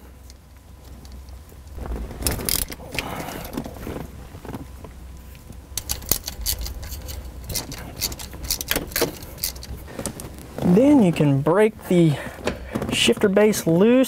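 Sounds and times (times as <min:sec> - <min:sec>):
ratchet clicking: 0:05.8 - 0:09.8
tool clatter: 0:05.8 - 0:09.9.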